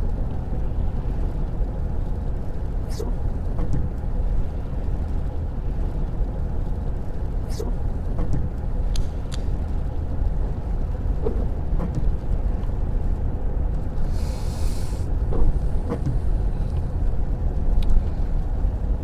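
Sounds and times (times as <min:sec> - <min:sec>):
tyre and road noise: 0:00.0 - 0:19.0
brief hiss: 0:14.1 - 0:15.1.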